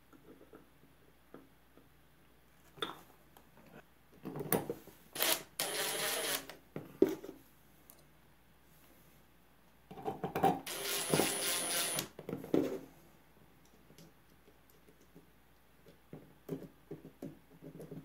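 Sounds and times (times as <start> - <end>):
cordless drill running: 5.2 - 6.5, 10.7 - 12.1.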